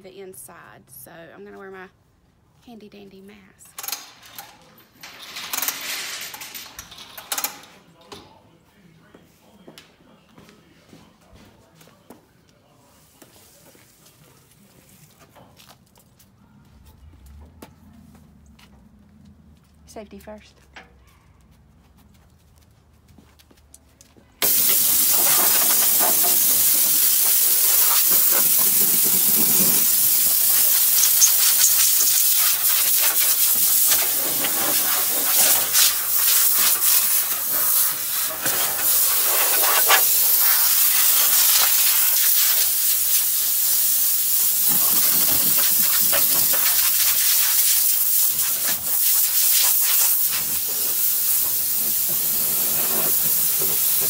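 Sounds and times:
compressed air blow gun hissing: 0:24.4 - 0:54.0.

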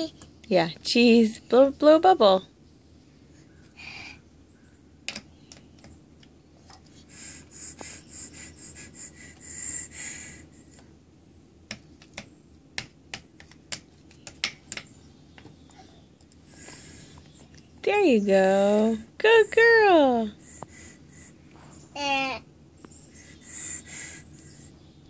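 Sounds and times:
breathy blowing into toy: 0:07.1 - 0:10.6, 0:23.0 - 0:24.7.

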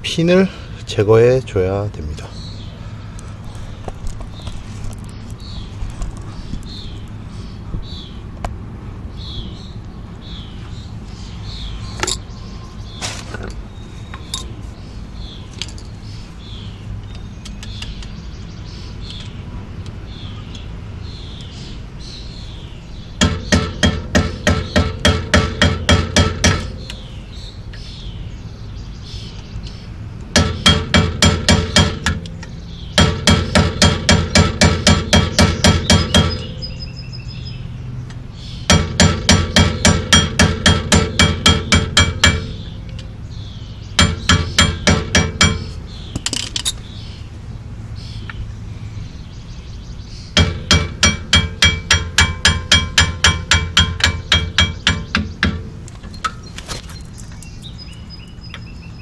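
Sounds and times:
hammer striking metal: 0:23.2 - 0:26.9, 0:30.4 - 0:32.3, 0:33.0 - 0:36.6, 0:38.7 - 0:42.7, 0:44.0 - 0:46.4, 0:50.4 - 0:55.7.

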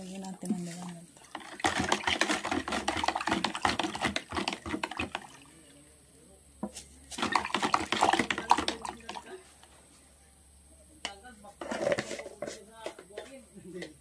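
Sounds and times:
liquid sloshing: 0:00.0 - 0:05.8, 0:07.1 - 0:09.4.

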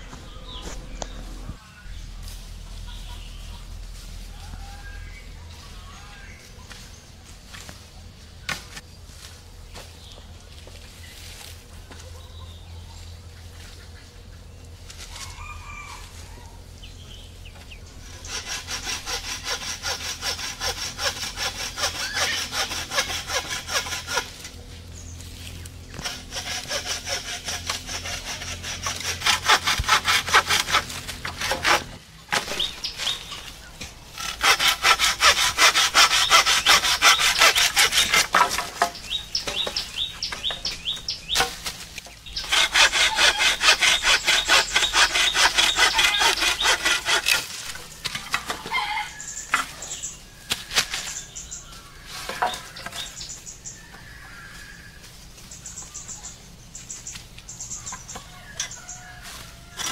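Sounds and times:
hand saw cutting bamboo: 0:17.6 - 0:24.7, 0:25.4 - 0:48.9, 0:58.6 - 0:59.9.

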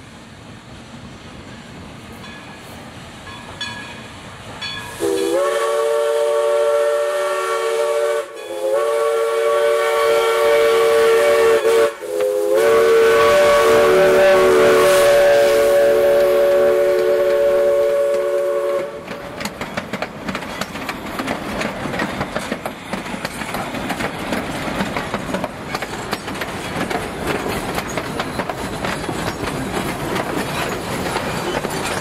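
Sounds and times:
steam locomotive whistle blasts: 0:04.8 - 0:19.2.

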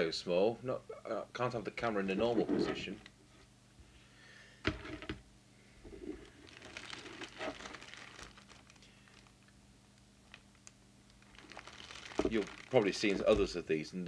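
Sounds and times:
plastic bag crinkling: 0:05.9 - 0:09.5, 0:10.2 - 0:13.7.

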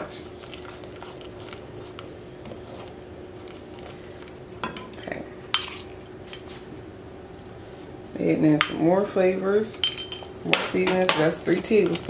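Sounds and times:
spoon stirring thick sauce: 0:00.0 - 0:04.4
faint steady hum: 0:00.0 - 0:12.0.

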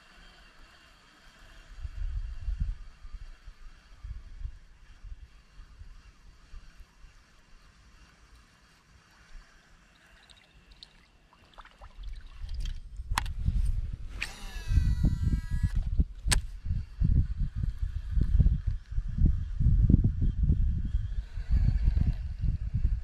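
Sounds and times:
fishing reel spool whirring: 0:00.0 - 0:13.3, 0:14.2 - 0:15.8
handling and wind rumble: 0:11.5 - 0:23.0
sharp reel clicks: 0:14.2 - 0:16.5.

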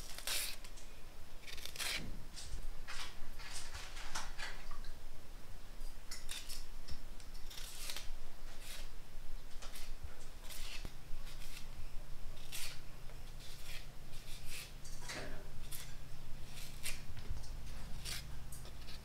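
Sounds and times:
cleaver scraping banana peel: 0:00.0 - 0:00.7, 0:01.4 - 0:02.1, 0:07.4 - 0:08.9, 0:09.6 - 0:11.7, 0:12.4 - 0:12.8, 0:13.4 - 0:14.8, 0:15.6 - 0:17.1, 0:17.7 - 0:19.0.

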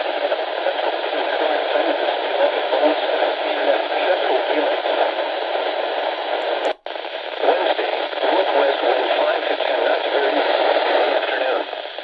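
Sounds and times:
radio static hiss: 0:00.0 - 0:12.0
faint radio clicks: 0:06.4 - 0:11.4.

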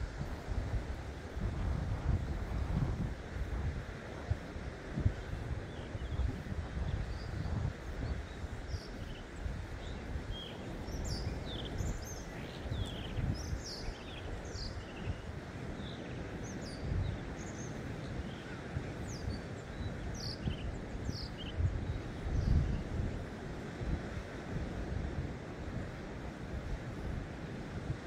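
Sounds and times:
wind rumble on microphone: 0:00.0 - 0:28.0
small birds chirping: 0:05.2 - 0:23.0.

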